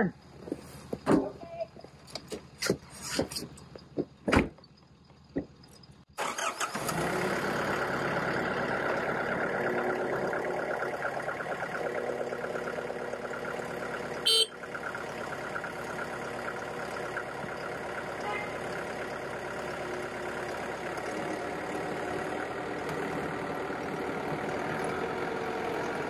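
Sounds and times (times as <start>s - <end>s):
tractor diesel engine running: 0.0s - 26.0s
horn honk: 14.2s - 14.8s, 18.2s - 18.6s.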